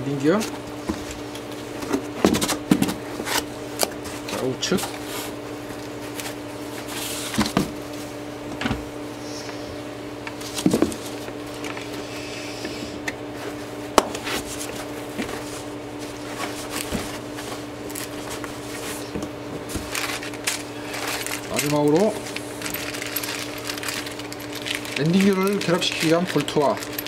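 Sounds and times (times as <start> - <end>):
steady low hum: 0.0 - 27.0
packing rustle and scrape: 19.7 - 27.0.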